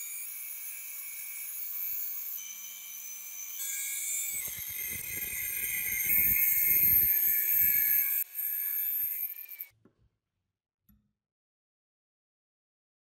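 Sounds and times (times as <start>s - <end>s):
motor whining: 0.9s - 9.7s
cut-off wheel grinding steel: 1.0s - 9.7s.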